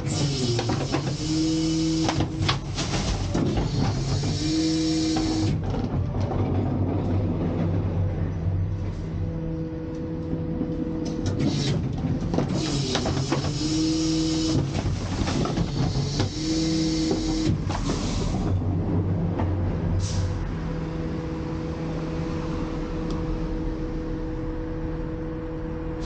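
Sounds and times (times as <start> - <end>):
garbage truck engine and hydraulics hum: 0.0 - 26.0
garbage bags rustling and thudding: 2.0 - 4.3.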